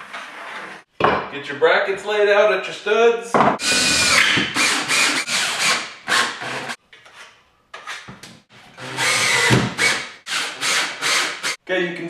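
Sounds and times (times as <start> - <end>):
cordless drill driving screws: 3.6 - 6.8, 8.8 - 11.6.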